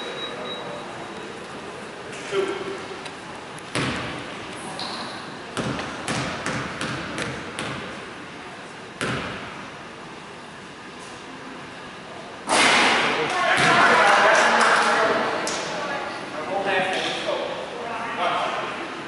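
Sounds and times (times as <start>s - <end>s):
basketball bouncing on hardwood floor: 5.6s - 7.8s.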